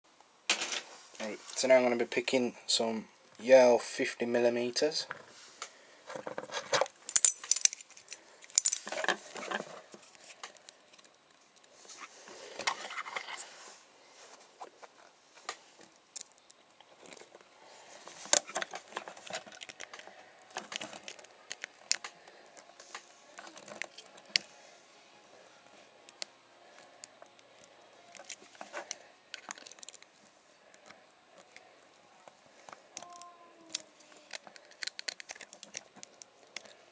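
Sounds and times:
lock pick clicks and scrapes: 0:06.3 - 0:09.6, 0:28.1 - 0:30.1, 0:33.0 - 0:36.7.

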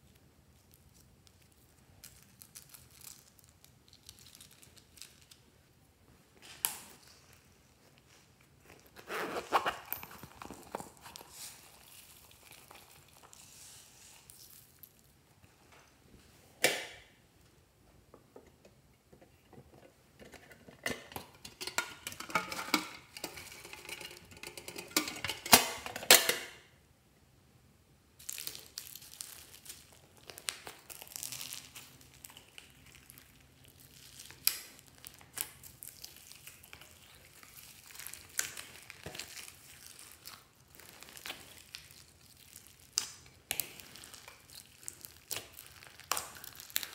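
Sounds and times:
slime squelching: 0:06.6 - 0:15.2, 0:28.2 - 0:46.9.

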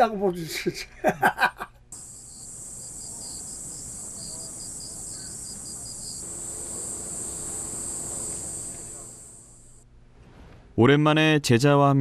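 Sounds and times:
elderly man laughing: 0:00.8 - 0:01.8
insects chirring: 0:01.9 - 0:09.8.

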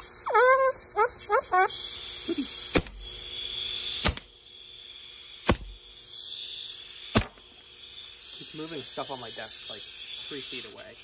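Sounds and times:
air leaking hiss: 0:00.0 - 0:11.0
air blaster firing cracks: 0:02.7 - 0:03.1, 0:03.9 - 0:04.4, 0:05.4 - 0:05.8, 0:07.0 - 0:07.5.

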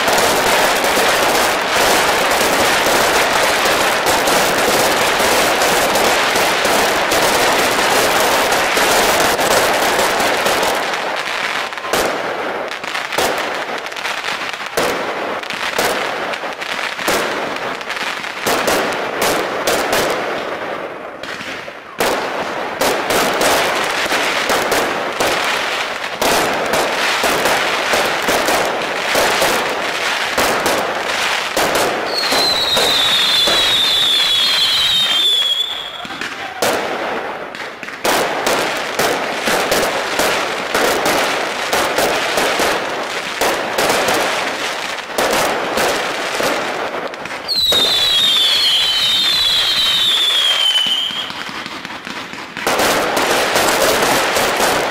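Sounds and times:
fireworks bangs: 0:00.0 - 0:54.9
fireworks crackle: 0:00.0 - 0:54.9
fireworks whistles sliding down: 0:32.1 - 0:36.6, 0:47.4 - 0:51.6.

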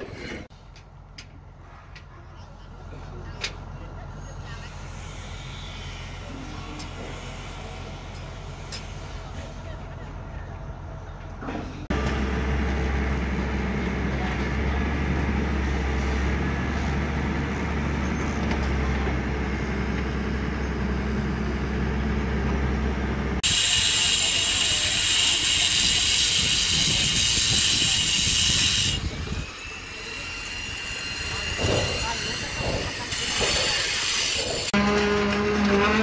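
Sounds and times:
construction machinery engine droning: 0:00.0 - 0:36.0
angle grinder on concrete: 0:23.4 - 0:36.0.

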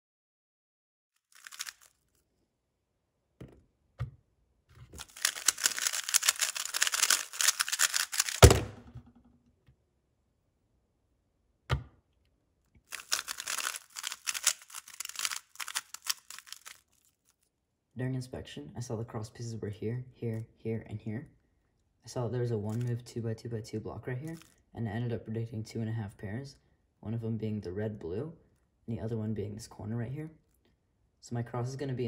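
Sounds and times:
rapid plastic cube clicks: 0:01.3 - 0:02.0, 0:05.0 - 0:08.7, 0:12.9 - 0:16.8.

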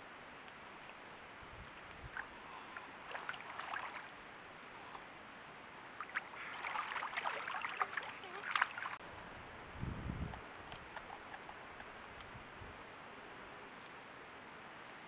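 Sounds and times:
beavers splashing in water: 0:01.7 - 0:04.3, 0:06.0 - 0:09.0, 0:10.6 - 0:12.3.

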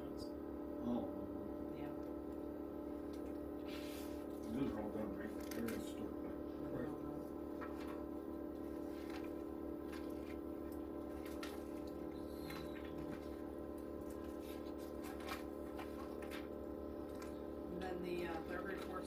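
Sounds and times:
machine humming: 0:00.0 - 0:19.0
papers rustling: 0:14.2 - 0:16.5.

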